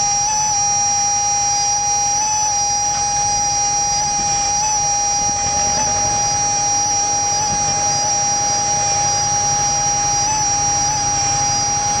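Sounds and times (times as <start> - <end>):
tractor engine pulsing: 2.9 - 12.0.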